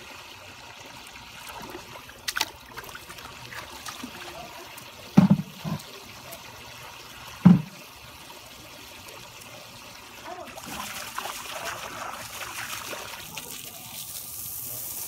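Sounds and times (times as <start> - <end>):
water trickling: 0.0 - 14.8
low thumps: 7.4 - 7.8.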